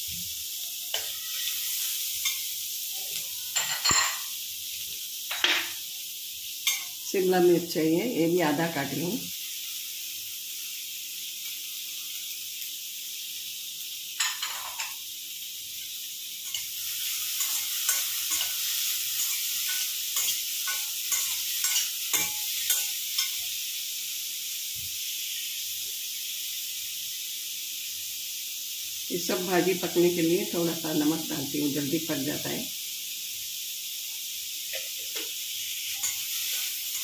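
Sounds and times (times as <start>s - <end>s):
vegetables sizzling in oil: 0.0s - 37.0s.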